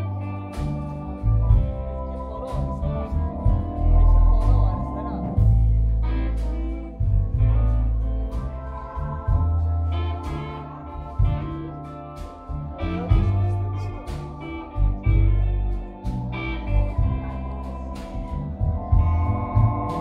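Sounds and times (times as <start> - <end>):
deep bass notes: 0.0 - 20.0
electric guitar: 0.0 - 20.0
keyboard: 0.0 - 20.0.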